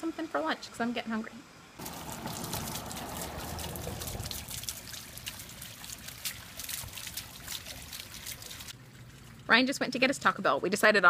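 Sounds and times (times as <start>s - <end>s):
fountain water bubbling and splashing: 1.8s - 10.2s.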